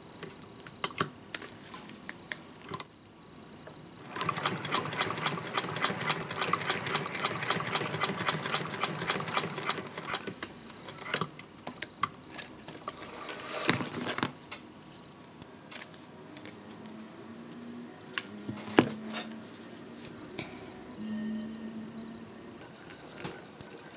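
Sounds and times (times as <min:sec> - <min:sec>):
sewing machine clatter: 0:04.1 - 0:10.3.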